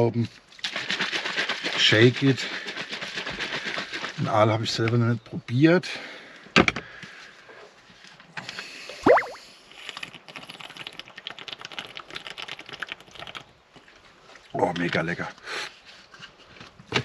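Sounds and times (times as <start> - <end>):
gulping drink: 9.0 - 9.4.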